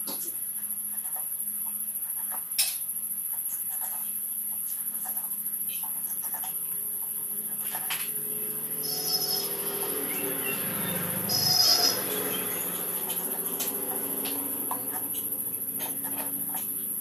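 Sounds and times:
crickets trilling: 0.0s - 17.0s
louder chirping trills: 5.4s - 15.8s.

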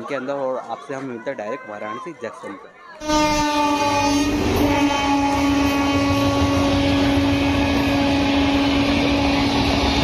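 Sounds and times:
train horn blast: 3.0s - 10.0s
train rumbling: 3.1s - 10.0s.

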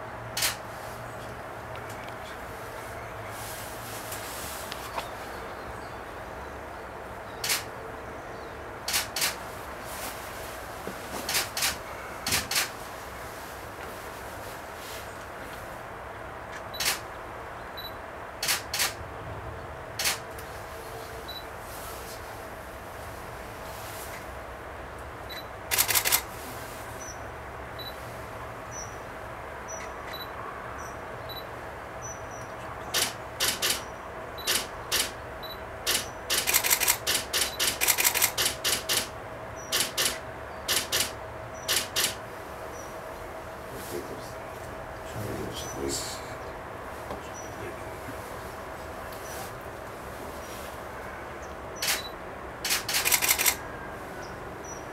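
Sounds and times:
steady background hiss: 0.0s - 19.1s, 19.7s - 54.9s
camera shutters clicking: 0.4s - 0.6s, 7.4s - 7.7s, 8.9s - 9.4s, 11.3s - 12.7s, 16.8s - 17.0s, 18.4s - 19.0s, 20.0s - 20.2s, 25.7s - 26.3s, 33.0s - 33.8s, 34.4s - 35.2s, 35.9s - 39.1s, 39.7s - 42.2s, 51.8s - 53.6s.

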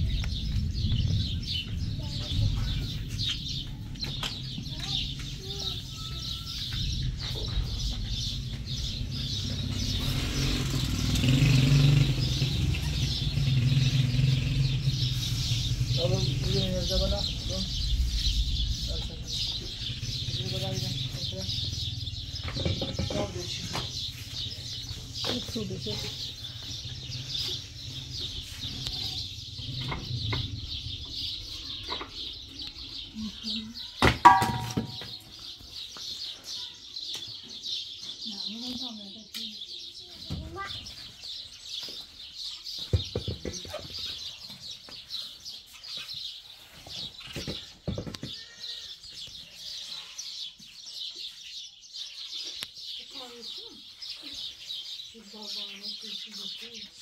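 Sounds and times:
steady low rumble: 0.0s - 5.8s, 6.6s - 10.3s, 14.7s - 22.5s, 26.2s - 33.6s
birds chirping and peeping: 0.0s - 57.0s.

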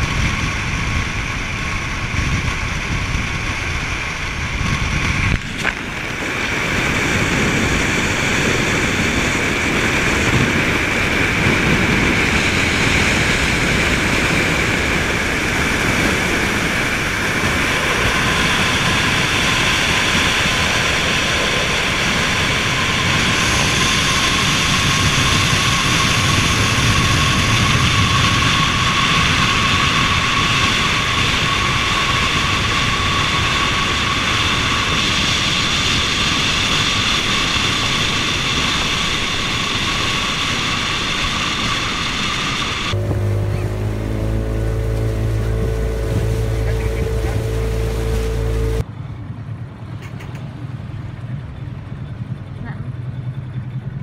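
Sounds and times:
wind and road noise: 0.0s - 54.0s
faint high whine: 8.9s - 48.8s.

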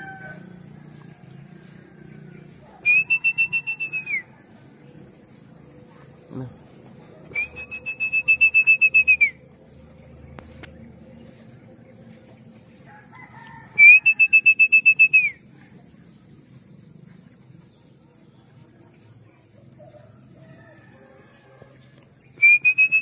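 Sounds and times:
trilling whistle blasts: 2.8s - 4.3s, 7.3s - 9.4s, 13.8s - 15.4s, 22.4s - 23.0s.

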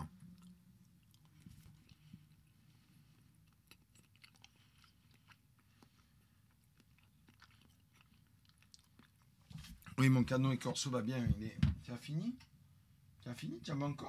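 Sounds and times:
faint chewing: 0.0s - 10.0s.

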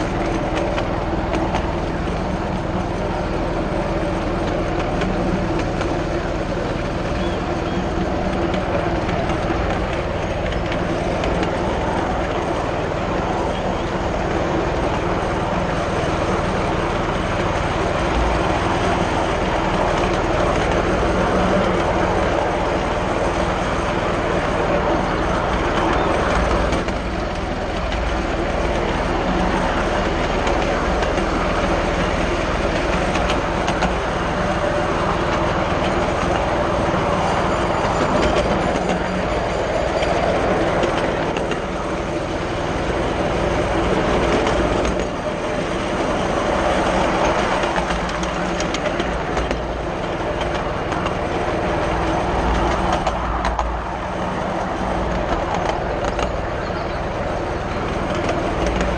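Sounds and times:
train wheels rumbling on rails: 0.0s - 58.9s.

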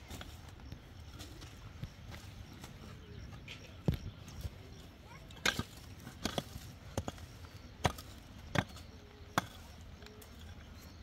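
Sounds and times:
hoe chopping into soil: 5.4s - 9.7s.

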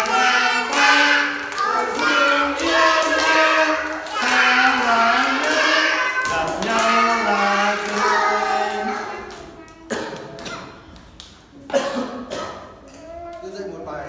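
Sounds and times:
children singing: 0.0s - 10.8s
clapping along: 0.0s - 11.4s
man singing: 1.8s - 8.9s.

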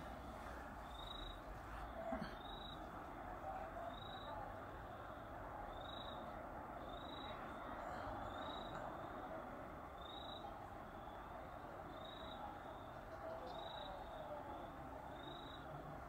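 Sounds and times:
chorus of night creatures: 11.9s - 16.0s.

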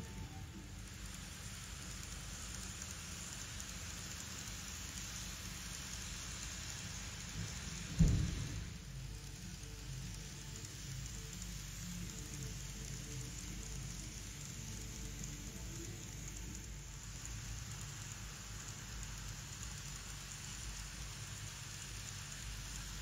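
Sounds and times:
model trains rolling on track: 0.0s - 23.0s
sharp low thump: 8.0s - 8.7s.

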